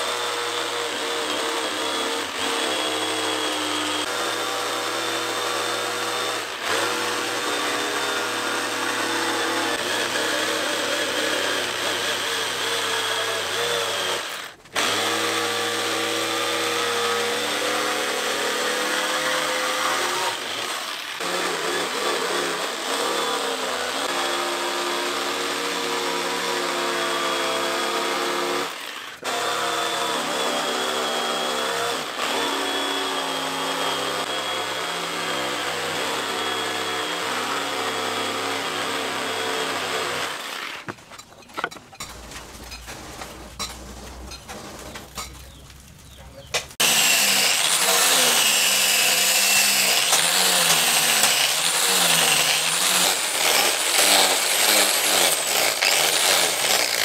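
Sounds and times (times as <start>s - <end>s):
angle grinder sanding wood: 0.0s - 41.8s, 46.7s - 57.0s
electric jigsaw cutting wood: 0.0s - 41.8s, 46.8s - 57.0s
knocks and handling: 40.8s - 46.8s.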